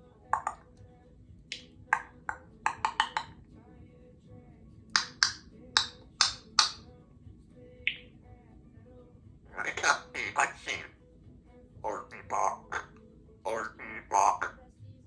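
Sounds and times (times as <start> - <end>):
parrot clicking and popping: 0.4 - 0.6, 1.5 - 3.4, 4.9 - 6.8.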